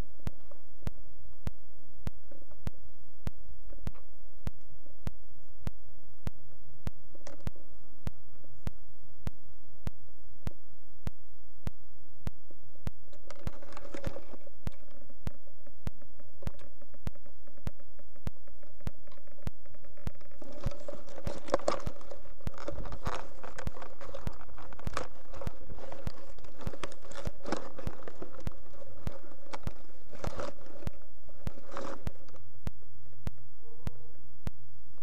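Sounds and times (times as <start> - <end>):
steady hum: 0.0 - 35.0
evenly spaced clicks: 6.8 - 7.6, 12.9 - 33.5.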